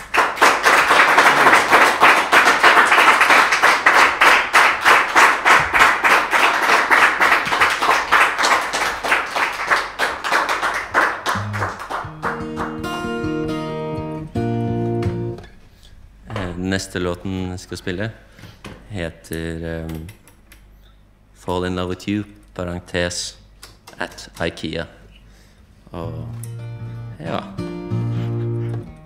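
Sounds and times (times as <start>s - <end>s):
audience applauding: 0.0s - 13.8s
acoustic guitar notes: 11.3s - 15.6s, 26.0s - 29.0s.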